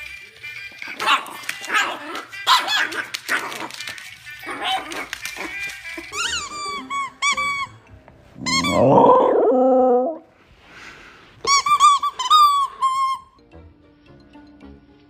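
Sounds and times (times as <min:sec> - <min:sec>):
rubber squeaky ball squeaking: 0:04.4 - 0:09.1, 0:11.4 - 0:13.4.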